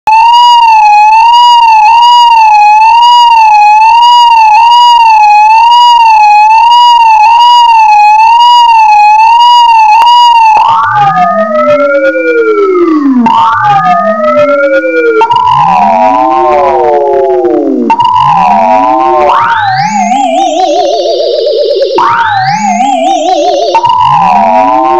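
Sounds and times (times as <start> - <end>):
warbling electronic tone: 10.6 - 24.9
downward sweeping tones: 11.3 - 24.9.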